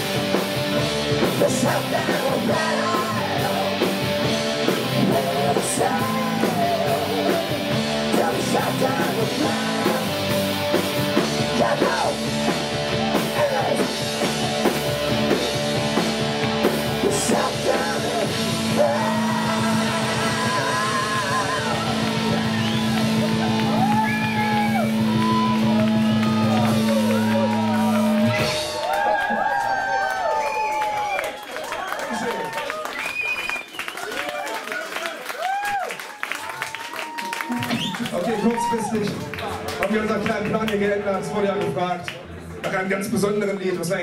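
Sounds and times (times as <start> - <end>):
live rock band playing: 0.0 - 29.1
person singing and shouting: 1.2 - 3.9, 4.8 - 10.3, 11.4 - 12.3, 13.2 - 14.0, 17.0 - 22.4.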